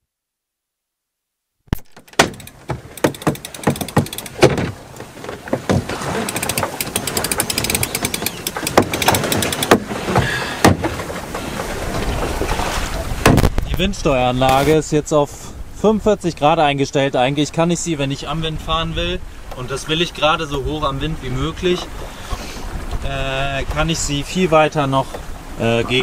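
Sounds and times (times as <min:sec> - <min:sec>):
sharp clicks and knocks: 0:01.7 - 0:11.0
wind and water rushing: 0:01.9 - 0:26.0.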